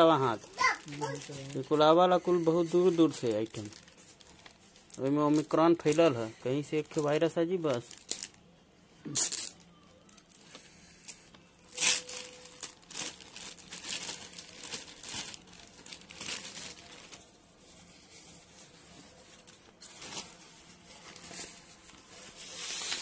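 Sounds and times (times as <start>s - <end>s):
plastic bag crinkling: 0.0s - 8.4s, 9.2s - 17.5s, 18.5s - 23.0s
plastic tearing: 9.1s - 17.3s, 21.0s - 23.0s.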